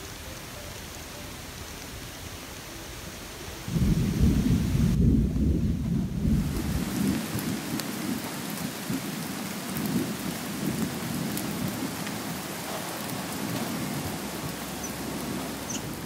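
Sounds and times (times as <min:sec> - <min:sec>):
rain-like hiss: 0:00.0 - 0:16.0
low rumble: 0:03.7 - 0:07.1.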